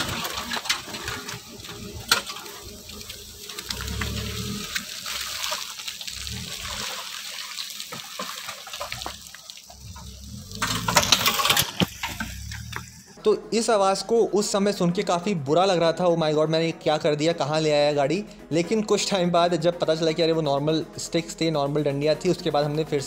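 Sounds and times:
tyres squelching through mud: 0:00.0 - 0:13.2.

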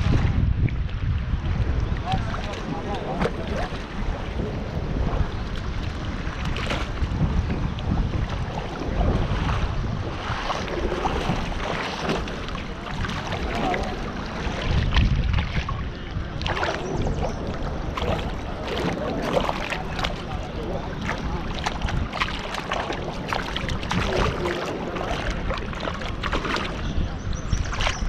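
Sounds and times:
wind buffeting microphone: 0:00.0 - 0:28.0
splashing in water: 0:08.3 - 0:28.0.

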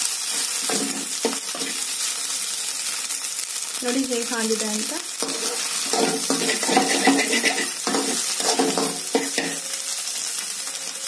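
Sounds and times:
frying sizzle: 0:00.0 - 0:11.0
metal spatula scraping a pan: 0:00.3 - 0:01.8, 0:05.2 - 0:09.8
spatula knocking on pan: 0:05.9 - 0:09.6.

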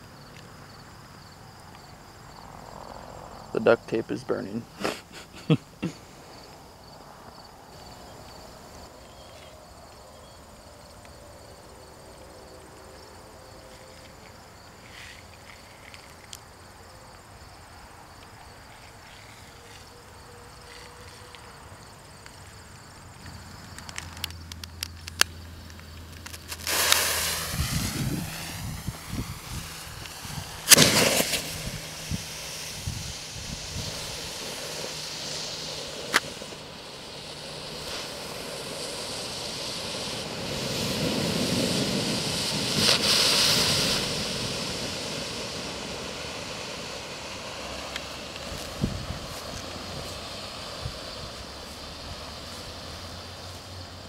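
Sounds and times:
firework hissing and crackling: 0:00.0 - 0:16.8, 0:17.4 - 0:54.0
insects chirping: 0:00.0 - 0:54.0
firework bang: 0:26.4 - 0:39.2.

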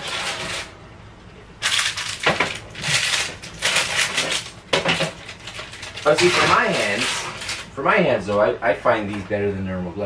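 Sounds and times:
sheet pan scraping and crinkling: 0:00.0 - 0:00.8, 0:02.8 - 0:07.7.

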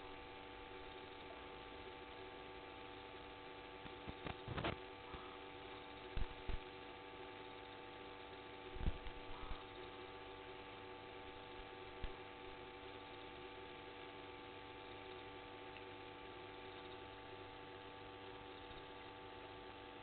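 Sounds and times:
electrical hum: 0:00.0 - 0:20.0.

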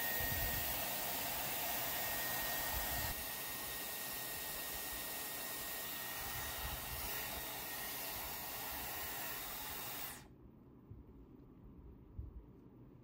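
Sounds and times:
hair styler blowing air: 0:00.0 - 0:10.3.

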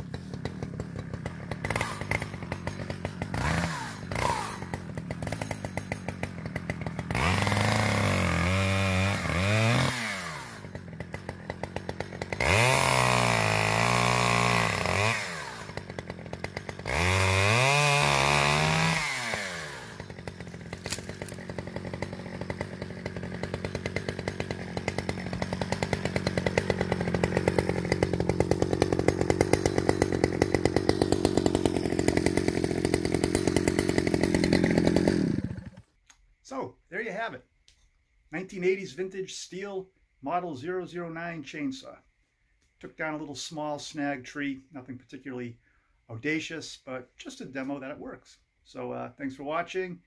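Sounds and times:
chainsaw revving and idling: 0:00.0 - 0:37.3.

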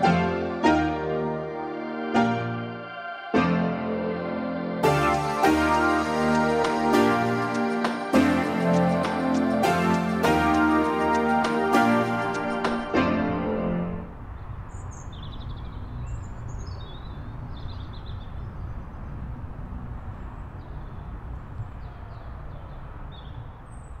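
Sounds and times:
background music: 0:00.0 - 0:14.2
small birds chirping: 0:14.2 - 0:24.0.

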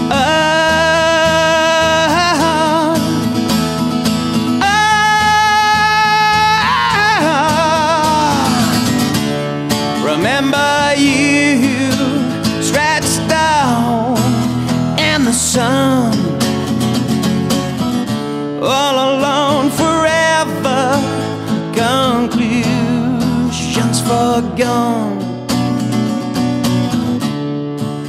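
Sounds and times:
man singing wordless notes: 0:00.0 - 0:03.4, 0:04.6 - 0:09.2, 0:09.9 - 0:16.7, 0:18.6 - 0:25.4
strummed acoustic guitar: 0:00.0 - 0:28.0.

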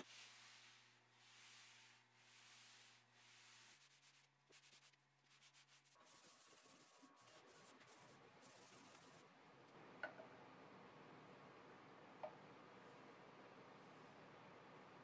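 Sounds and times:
cloth rubbing wood: 0:00.0 - 0:09.2.

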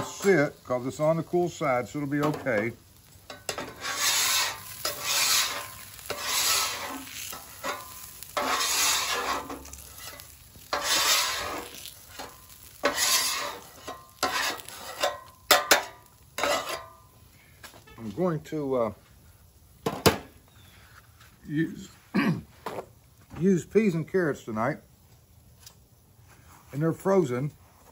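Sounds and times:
scraper scraping steel griddle: 0:00.0 - 0:00.7, 0:03.3 - 0:17.0.

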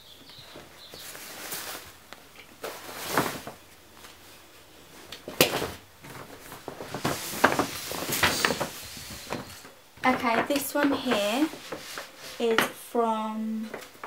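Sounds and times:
plastic wrapping crinkling: 0:00.6 - 0:04.4, 0:05.0 - 0:12.6
paper bag rustling: 0:00.6 - 0:10.2.

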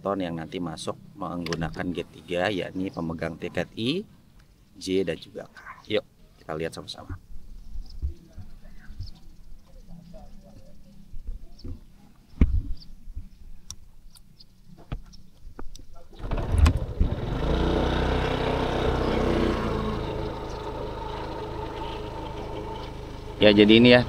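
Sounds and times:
vehicle engine starting and running: 0:16.2 - 0:24.0.

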